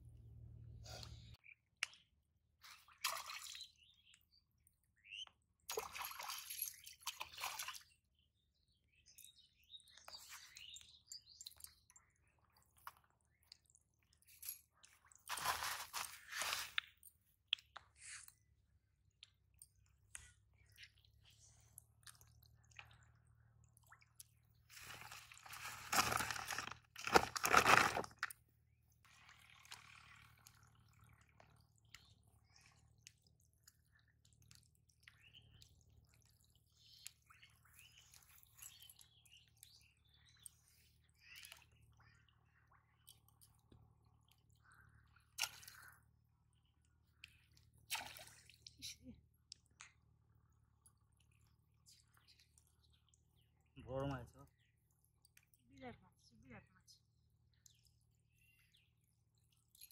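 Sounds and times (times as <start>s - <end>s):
plastic sack rustling: 15.3s - 16.7s, 24.8s - 28.1s
fish splashing in water: 47.8s - 48.6s.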